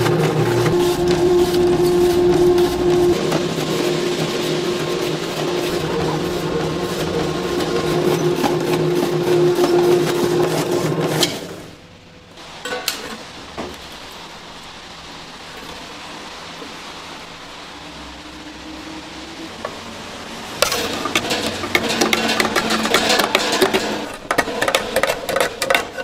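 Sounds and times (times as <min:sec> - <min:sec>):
electric slicer motor running: 0:00.0 - 0:11.5
metal pan clanking: 0:20.6 - 0:26.0.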